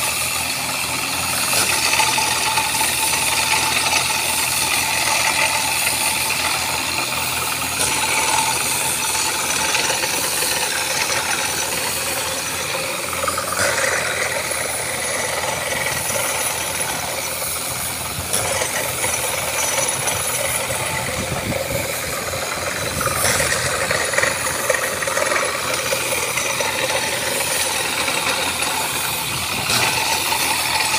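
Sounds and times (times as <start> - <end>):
constant hiss of water blowing out: 0.0 - 30.9
drilling rig engine: 0.0 - 30.9.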